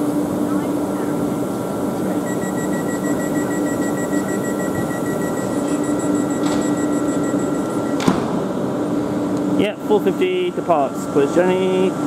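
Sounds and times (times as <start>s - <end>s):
electric train humming: 0.0s - 9.3s
high-pitched electronic beeping: 2.2s - 8.0s.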